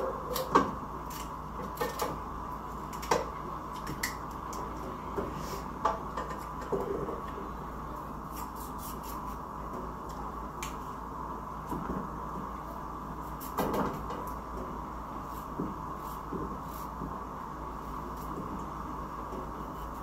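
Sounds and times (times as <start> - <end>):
steady hum: 0.0 - 20.0
knife cutting potato: 8.3 - 9.4.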